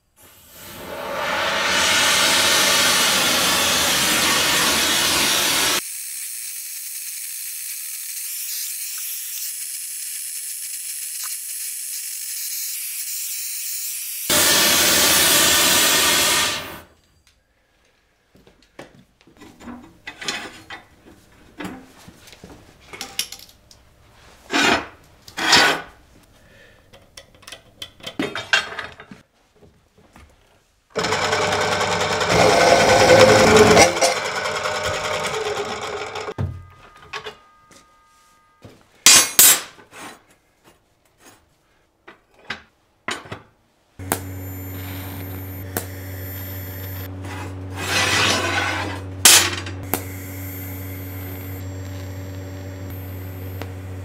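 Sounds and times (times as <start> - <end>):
gas torch hissing: 0.2 - 16.9.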